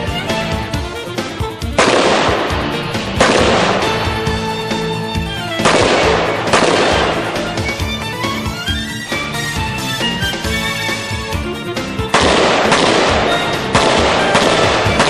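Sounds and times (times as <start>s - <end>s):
music with sustained notes: 0.0s - 15.0s
loud crashing hits: 1.6s - 8.3s.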